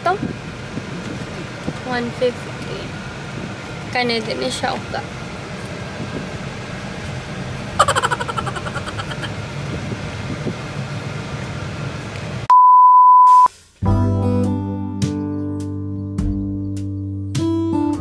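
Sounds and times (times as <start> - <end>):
car road and engine noise: 0.0 - 12.5
loud pure beep tone: 12.5 - 13.5.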